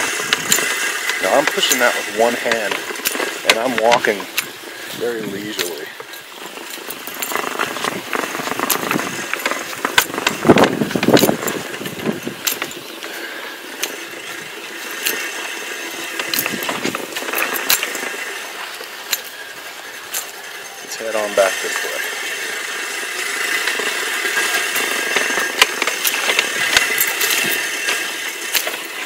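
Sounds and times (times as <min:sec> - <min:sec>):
reel mower cutting grass: 0:00.0 - 0:29.0.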